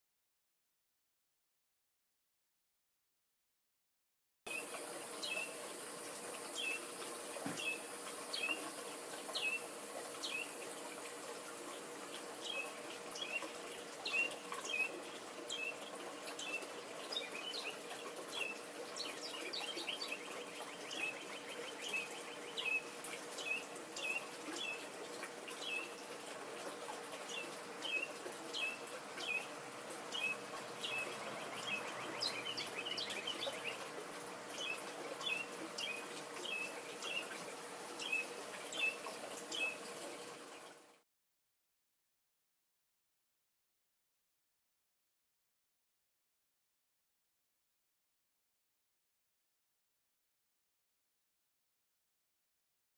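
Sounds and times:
songbird chirping: 4.5 - 5.6, 6.4 - 10.7, 12.1 - 26.1, 27.2 - 33.9, 34.5 - 39.9
steady background hiss: 4.5 - 40.9.

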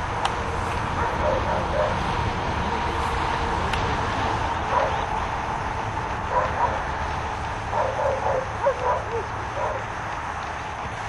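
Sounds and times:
dog barking: 1.0 - 2.0, 4.7 - 5.0, 6.3 - 6.9, 7.7 - 9.9.

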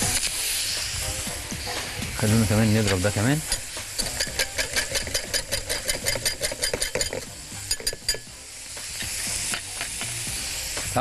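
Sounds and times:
sizzling hiss: 0.0 - 11.0
wire whisk clicking in metal pot: 2.9 - 8.2.

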